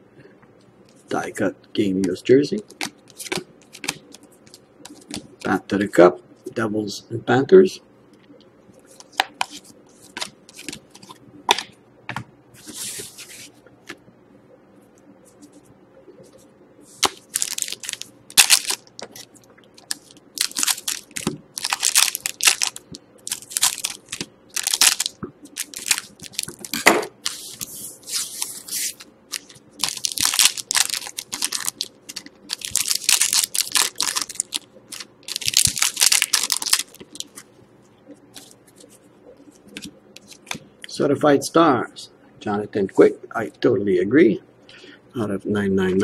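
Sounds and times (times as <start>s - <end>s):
card packs being torn open: 17.0s - 37.4s
wrappers crinkling: 17.0s - 37.5s.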